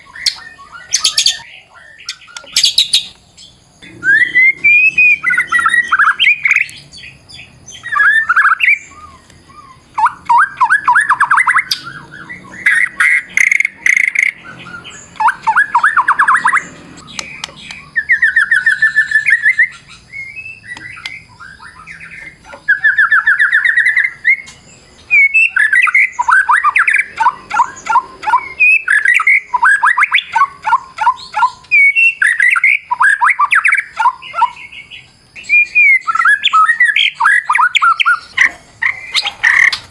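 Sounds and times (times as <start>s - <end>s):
bird singing trills and whistles: 0.0s - 39.9s
sharp clicks: 17.0s - 17.8s, 20.7s - 21.2s.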